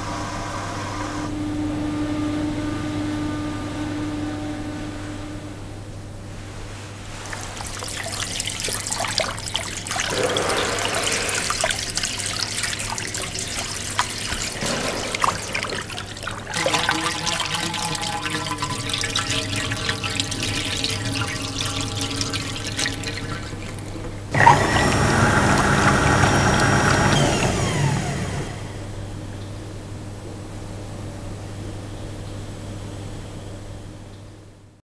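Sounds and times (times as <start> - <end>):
vacuum toilet flush whoosh: 6.4 - 29.0
water running and splashing: 6.8 - 28.8.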